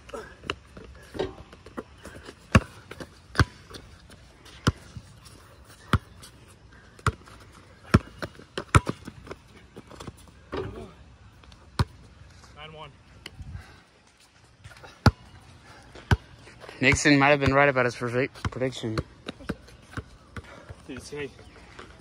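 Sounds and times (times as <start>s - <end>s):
basketball bouncing on concrete: 0.4s - 5.0s, 5.8s - 6.2s, 7.0s - 9.4s, 11.8s - 12.0s, 14.9s - 15.4s, 16.0s - 21.1s.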